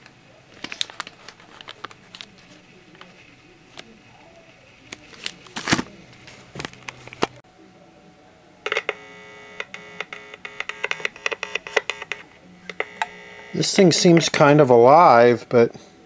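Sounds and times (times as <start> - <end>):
electrical buzz with crackle: 8.7 - 13.6.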